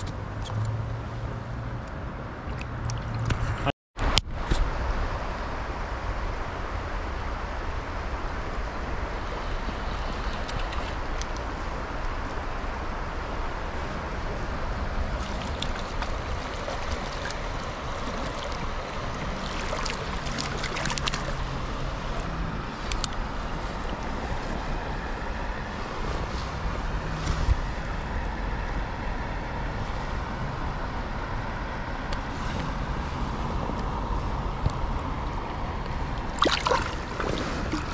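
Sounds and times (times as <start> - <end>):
water splashes: 2.4 - 3.5, 8.4 - 12.5, 13.1 - 27.2, 36.0 - 37.9
creek water running over gravel: 8.8 - 27.2, 35.9 - 37.9.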